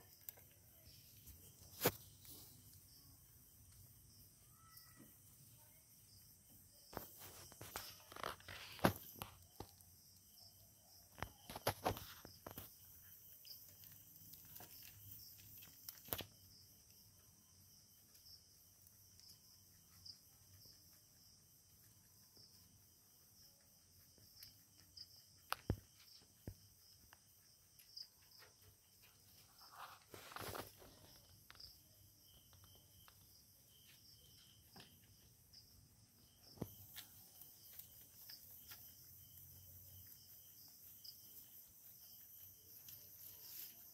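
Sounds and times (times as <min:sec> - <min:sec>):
crickets chirping faintly: 0:00.0 - 0:43.9
rabbits rustling in hay: 0:29.0 - 0:31.3, 0:40.7 - 0:43.9.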